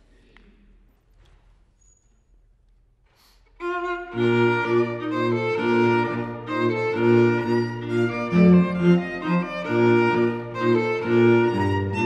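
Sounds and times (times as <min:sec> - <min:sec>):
bassoon and strings chamber music: 0:03.6 - 0:12.0.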